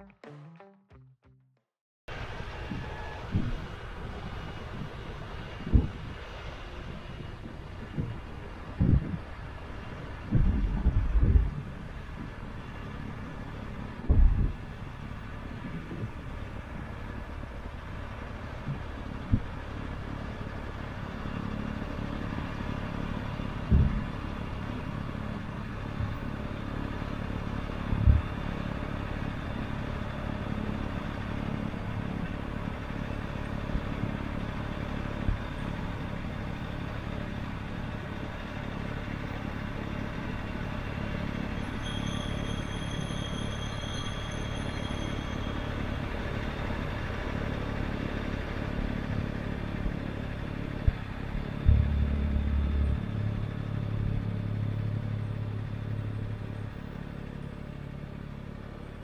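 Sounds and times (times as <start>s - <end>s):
tractor engine running under load: 2.1s - 59.0s.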